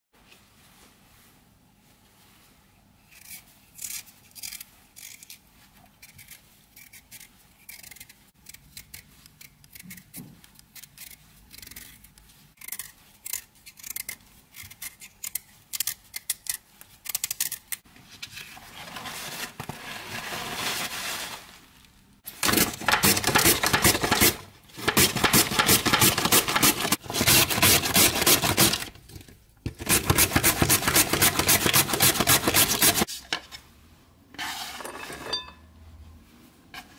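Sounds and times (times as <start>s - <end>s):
knife scraping beetroot skin: 3.1s - 5.4s, 6.0s - 17.6s, 22.6s - 28.9s, 29.8s - 33.2s
beet rasping on grater: 22.8s - 28.9s, 29.8s - 33.1s.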